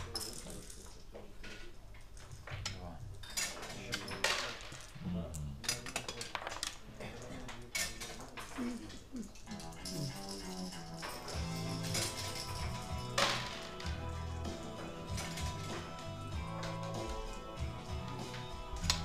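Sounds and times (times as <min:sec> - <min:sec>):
checkers clacking on board: 0:05.6 - 0:19.0.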